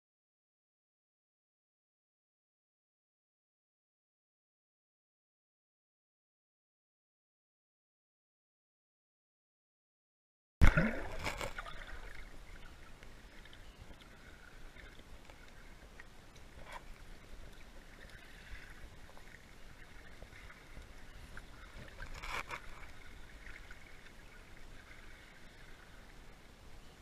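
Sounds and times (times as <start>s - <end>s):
splash into water: 10.6s - 12.2s.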